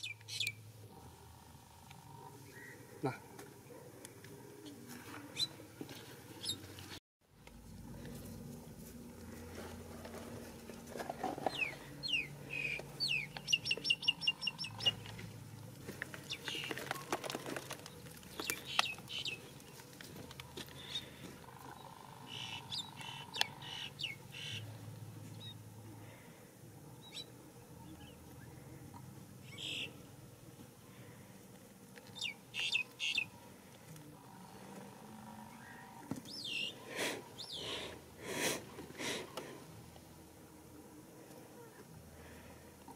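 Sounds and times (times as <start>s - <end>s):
faint outdoor background: 0.0s - 42.9s
high-pitched chirping calls: 11.5s - 15.0s.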